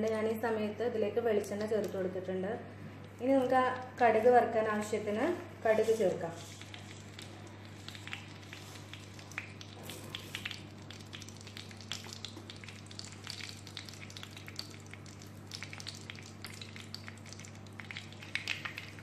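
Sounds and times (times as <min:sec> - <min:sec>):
seeds sizzling and popping in oil: 0:06.4 - 0:19.0.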